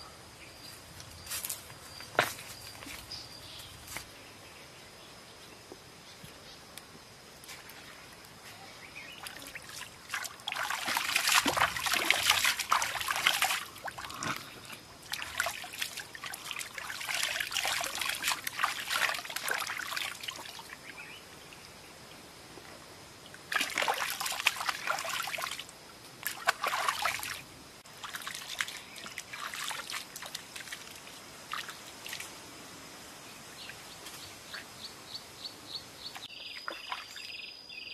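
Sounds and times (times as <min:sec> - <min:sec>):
water pouring and splashing: 0:09.2 - 0:20.8, 0:23.5 - 0:32.3.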